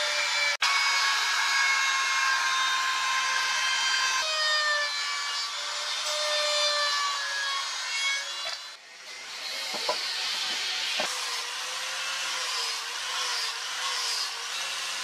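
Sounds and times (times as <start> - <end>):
electric router cutting wood: 0.0 - 15.0.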